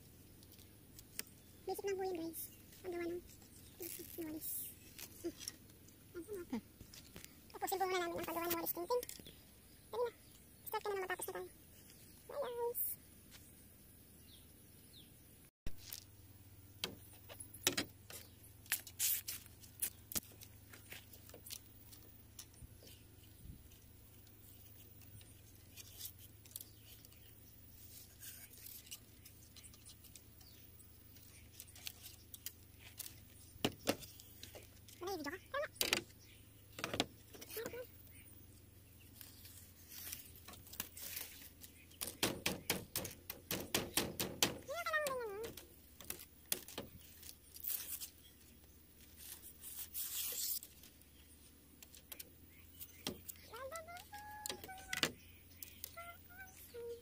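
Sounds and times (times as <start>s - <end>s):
knife scraping leaf midribs: 18.1s - 23.0s, 24.4s - 36.0s, 39.1s - 44.6s, 45.4s - 51.2s.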